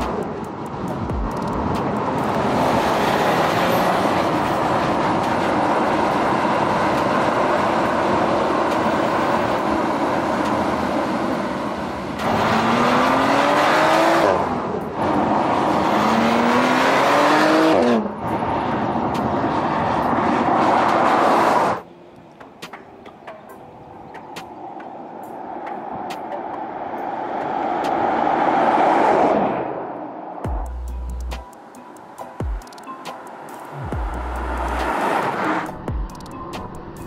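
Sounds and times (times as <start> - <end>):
car engine accelerating: 0.0 - 21.8, 33.2 - 36.1
tyre and road noise: 0.0 - 37.0.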